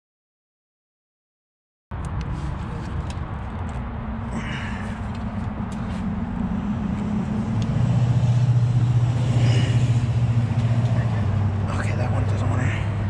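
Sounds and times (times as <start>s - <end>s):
vehicle engine humming: 1.9s - 13.0s.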